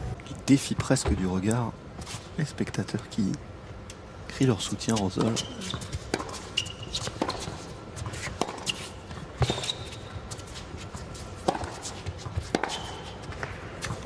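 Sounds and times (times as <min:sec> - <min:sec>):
shoe squeaks on court: 0:05.2 - 0:07.6, 0:08.2 - 0:10.4
racket striking tennis ball: 0:08.2 - 0:09.8, 0:11.4 - 0:14.0.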